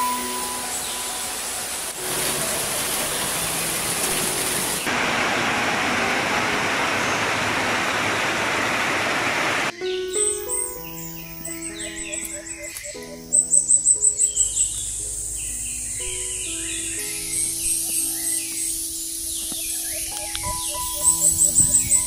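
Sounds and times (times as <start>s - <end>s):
rain falling on leaves: 0.0s - 9.7s.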